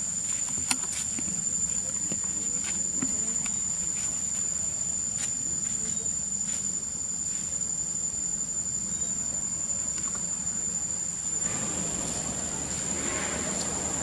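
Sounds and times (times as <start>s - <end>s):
insects shrilling: 0.0s - 14.0s
low hum: 7.9s - 14.0s.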